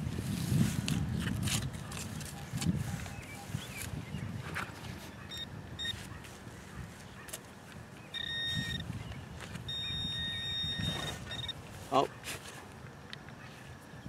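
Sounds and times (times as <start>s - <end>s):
metal detector beeps and tones: 5.1s - 6.1s, 8.0s - 11.6s.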